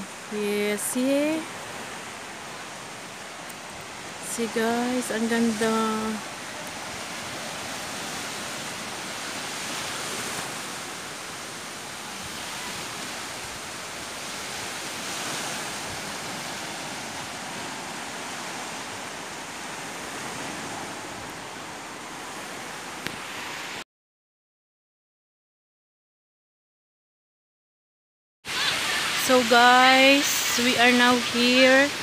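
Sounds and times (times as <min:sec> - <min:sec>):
small waves washing on beach: 0:00.0 - 0:23.8, 0:28.5 - 0:32.0.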